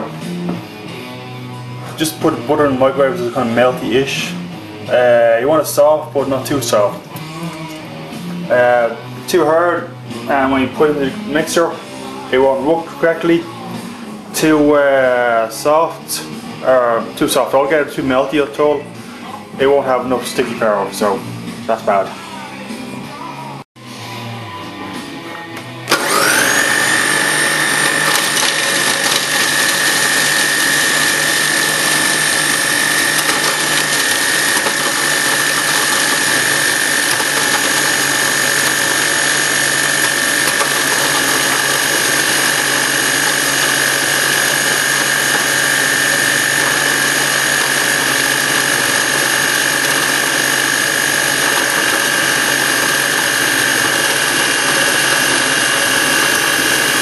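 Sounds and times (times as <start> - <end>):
food processor motor whining: 25.9 - 57.0.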